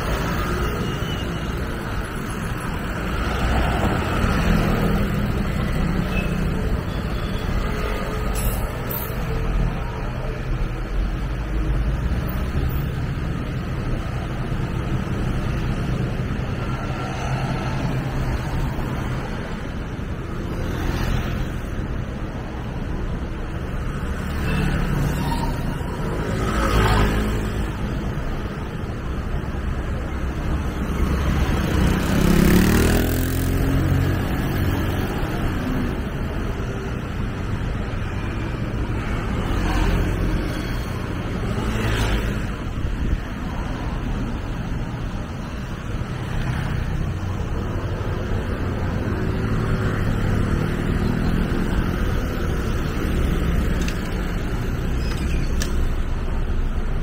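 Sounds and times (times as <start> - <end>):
vehicles passing: 0.0 - 57.0
low traffic rumble: 25.0 - 57.0.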